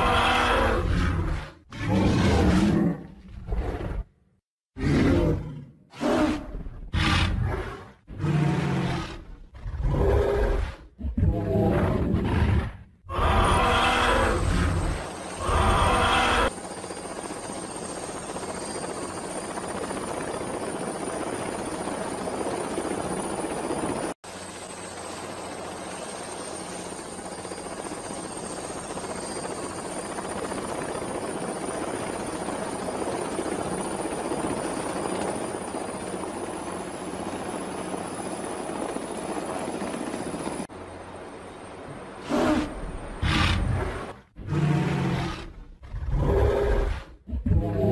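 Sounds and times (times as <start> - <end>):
helicopter rotor and engine: 11.6 - 47.8.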